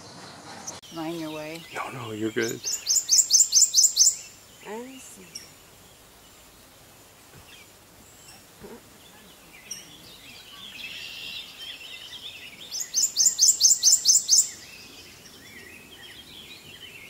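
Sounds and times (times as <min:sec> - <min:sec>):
faint chattering birdsong: 0:00.0 - 0:17.0
warbler singing high notes: 0:00.8 - 0:05.6.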